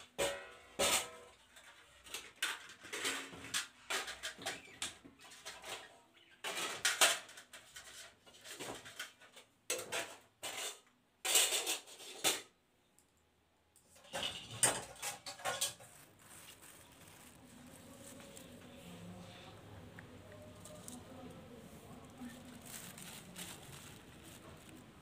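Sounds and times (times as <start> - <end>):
steel plates and bowls clattering: 13.9 - 16.0.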